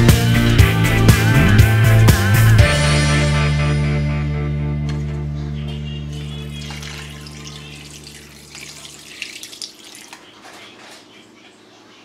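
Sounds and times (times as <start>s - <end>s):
background music: 0.0s - 8.8s
water splashing at a sink: 6.2s - 10.6s.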